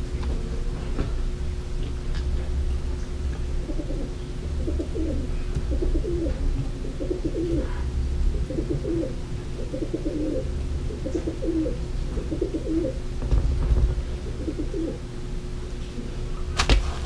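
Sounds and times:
low hum: 0.0s - 17.0s
dove cooing: 3.6s - 13.0s, 14.1s - 15.1s.

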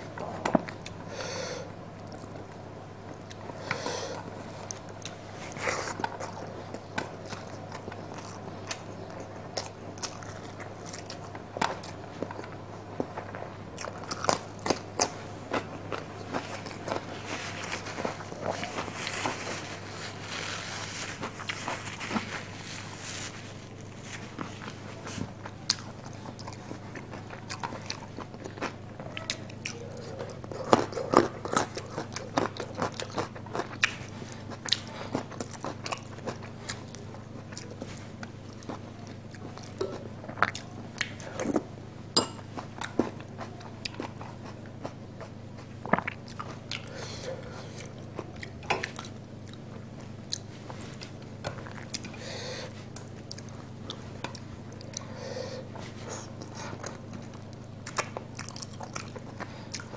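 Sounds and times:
steady low hum: 0.0s - 59.9s
chewing with wet mouth smacks: 2.0s - 19.9s, 23.8s - 41.7s, 42.4s - 59.9s.

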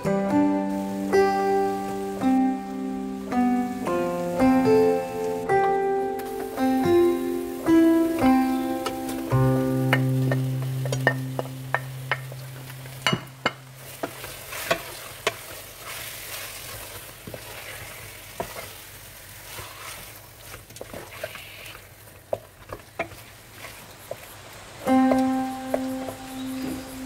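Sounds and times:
background music notes: 0.0s - 14.0s, 24.7s - 27.0s
faint sizzle: 0.0s - 27.0s.

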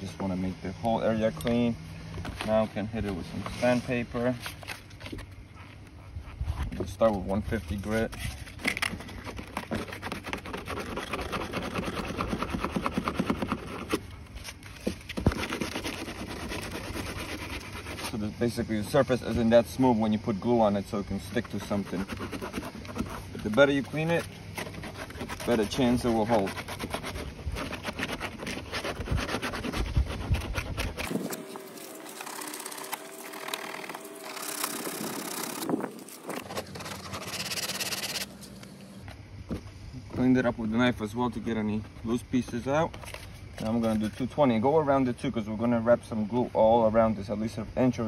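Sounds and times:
faint steady hum: 0.0s - 48.0s
sandpaper rubbing on plastic: 2.3s - 5.2s, 6.4s - 18.6s, 21.1s - 38.6s.

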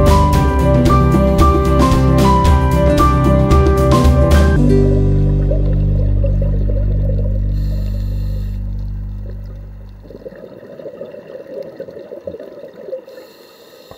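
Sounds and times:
low music chord ringing: 0.0s - 10.3s
bubbling gurgling water: 5.0s - 13.3s.

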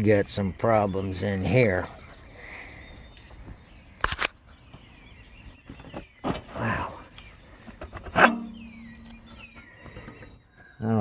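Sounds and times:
ringing metal clank: 8.1s - 9.6s.

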